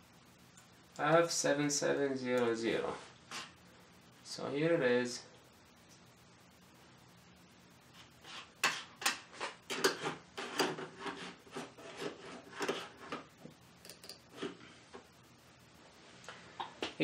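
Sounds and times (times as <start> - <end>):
rubbing scraping strokes: 7.8 - 13.3.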